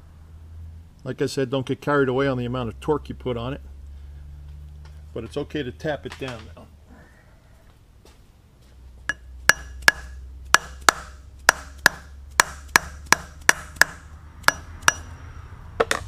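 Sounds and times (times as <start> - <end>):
low steady hum: 0.0 - 16.0
hammer tapping metal: 9.1 - 15.2.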